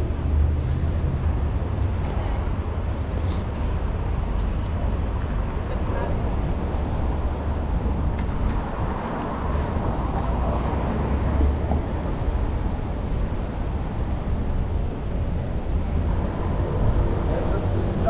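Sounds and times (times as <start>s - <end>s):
low traffic rumble: 0.0s - 18.0s
vehicles passing: 0.0s - 18.0s.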